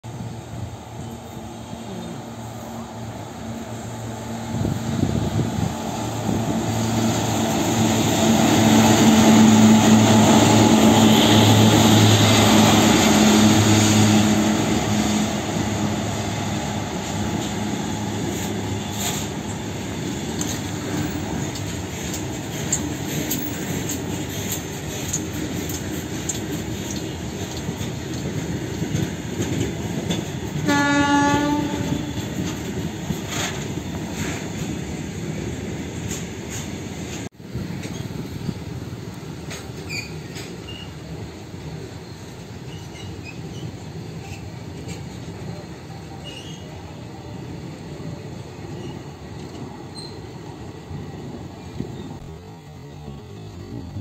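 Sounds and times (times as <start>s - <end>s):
electric locomotive hum: 0.1s - 54.0s
freight wagons clattering on rails: 17.1s - 30.7s
train horn: 30.6s - 32.4s.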